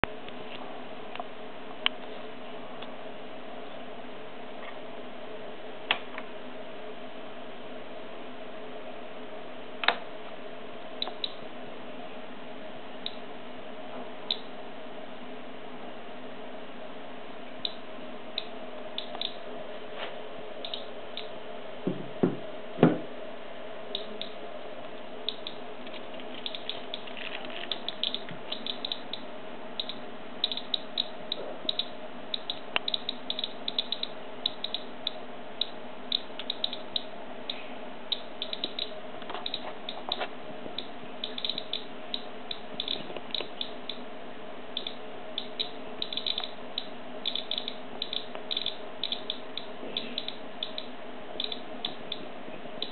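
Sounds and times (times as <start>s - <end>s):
faint steady hum: 0.0s - 52.9s
radiation counter clicking: 11.0s - 11.4s, 13.0s - 13.3s, 14.2s - 14.5s, 17.6s - 19.5s, 20.6s - 21.4s, 23.9s - 24.4s, 25.2s - 44.1s, 44.7s - 52.9s
loud knocks: 21.8s - 23.1s.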